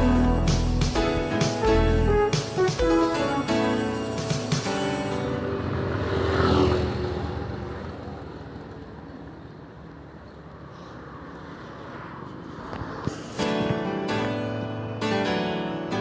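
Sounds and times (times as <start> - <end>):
motor scooter passing: 4.3 - 14.9.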